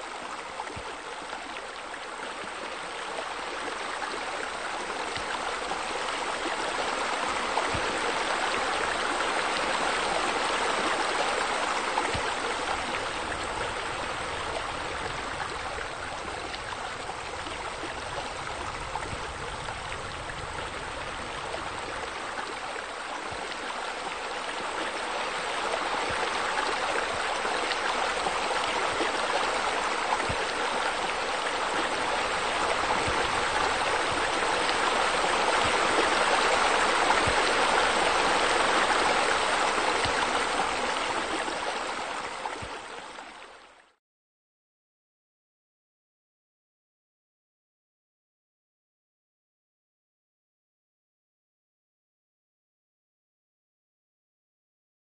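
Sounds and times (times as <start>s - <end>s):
running splashing water: 0.0s - 43.2s.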